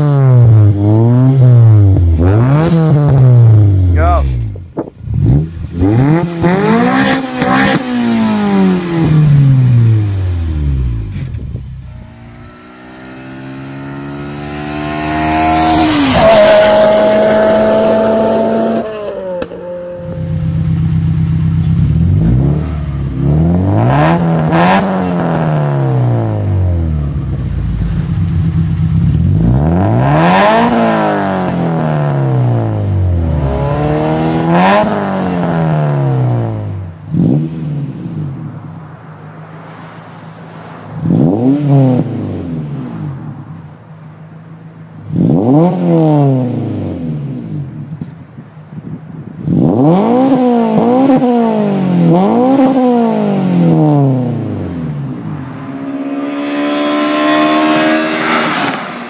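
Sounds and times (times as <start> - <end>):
car engine revving: 0.0 - 48.1, 49.3 - 59.0
car accelerating past: 5.2 - 19.5, 29.5 - 43.5, 49.5 - 59.0.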